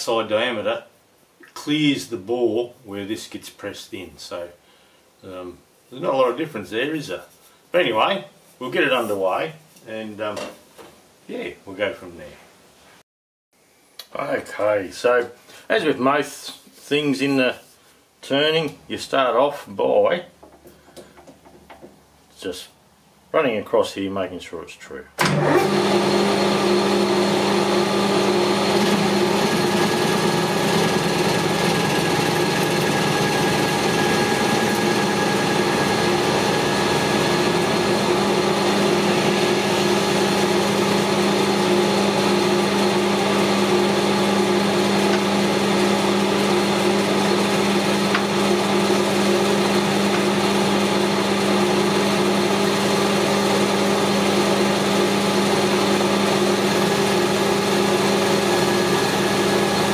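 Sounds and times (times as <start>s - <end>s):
metal lathe humming: 25.4s - 59.9s.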